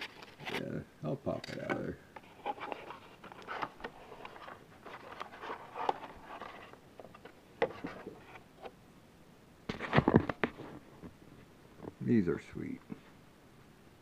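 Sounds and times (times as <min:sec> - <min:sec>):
cardboard and plastic rustling: 0:00.0 - 0:00.7, 0:01.5 - 0:08.7, 0:09.7 - 0:11.2.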